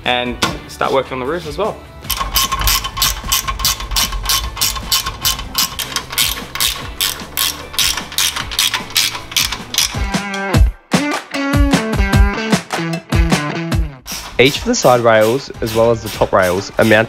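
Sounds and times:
ratchet wrench clicking: 2.1s - 10.5s.

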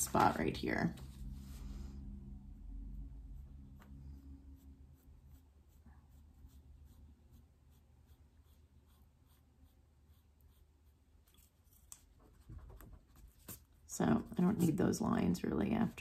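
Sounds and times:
pencil scratching on paper: 3.4s - 13.7s.

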